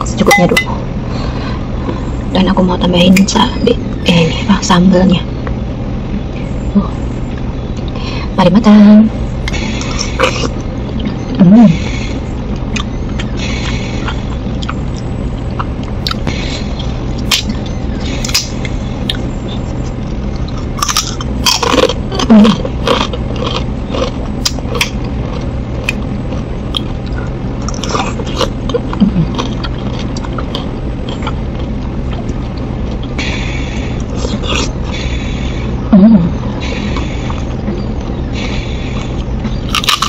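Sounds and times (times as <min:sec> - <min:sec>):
low background hum: 0:00.0 - 0:40.0
wet chewing and mouth smacks: 0:12.5 - 0:33.2.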